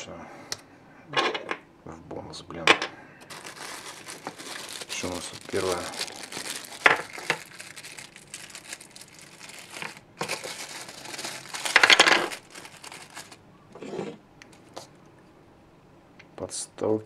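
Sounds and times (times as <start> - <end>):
plastic bag crinkling: 3.2 - 13.4.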